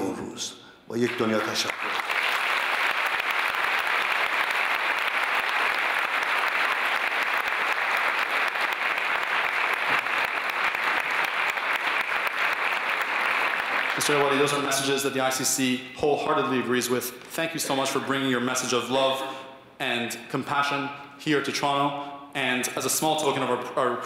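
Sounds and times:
large audience applauding: 1.0s - 15.0s.

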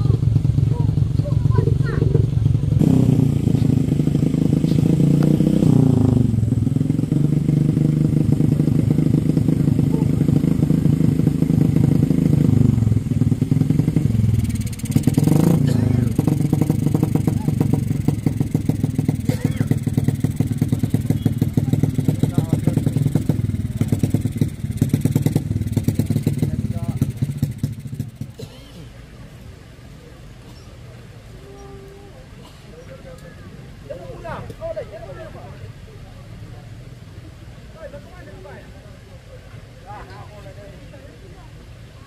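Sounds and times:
small engine revving: 0.0s - 28.4s.

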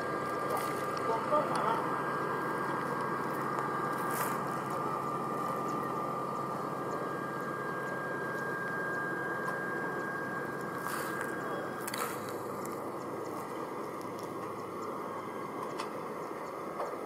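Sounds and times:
jet engines idling: 0.0s - 17.0s.

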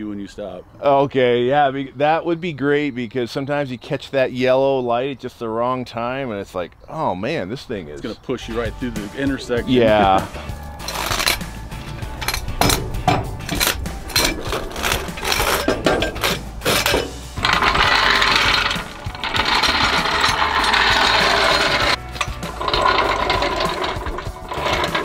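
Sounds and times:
metal clanks: 10.3s - 25.0s
rattling mechanical noise: 10.7s - 25.0s
ratcheting clicks: 10.8s - 25.0s.

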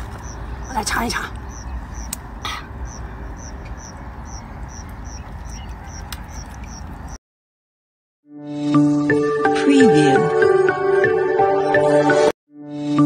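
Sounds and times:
high animal chirps: 0.0s - 7.0s
low outdoor rumble: 0.0s - 7.2s.

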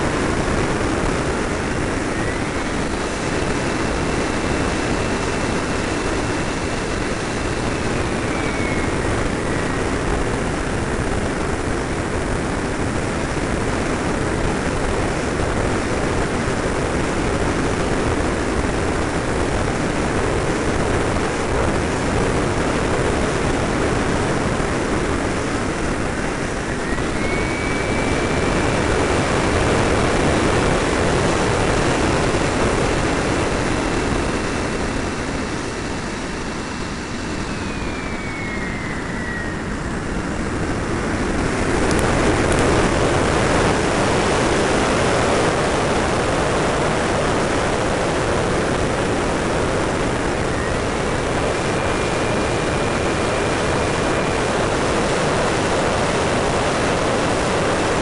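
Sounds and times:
airflow rushing over camera: 0.0s - 58.0s
high whine of model jet: 0.0s - 58.0s.

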